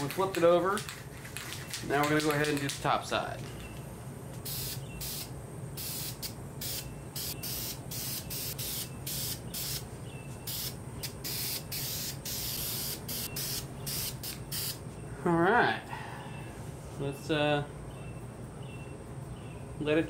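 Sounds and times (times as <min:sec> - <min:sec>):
aerosol spray can hissing: 0:04.4 - 0:14.8.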